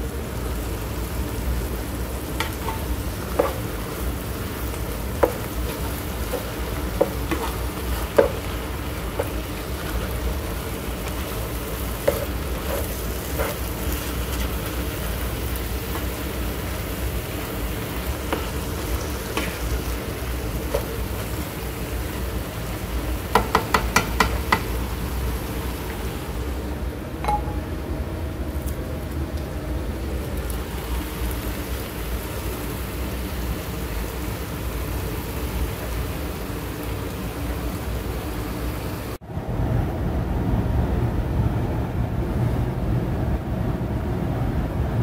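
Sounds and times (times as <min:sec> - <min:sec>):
vegetables sizzling in a pan: 0:00.0 - 0:26.8, 0:29.8 - 0:39.2.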